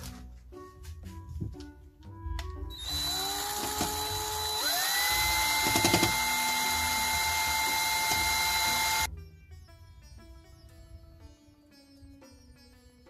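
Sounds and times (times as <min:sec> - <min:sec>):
power drill motor whine: 0:02.7 - 0:09.1.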